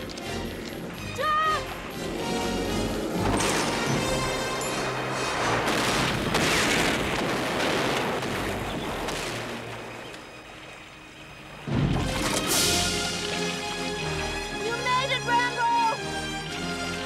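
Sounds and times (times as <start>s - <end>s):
heavy explosion blasts: 5.2s - 9.6s.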